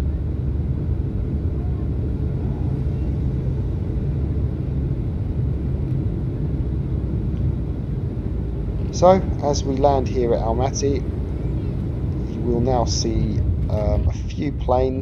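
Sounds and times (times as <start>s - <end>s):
airplane cabin low rumble: 0.0s - 15.0s.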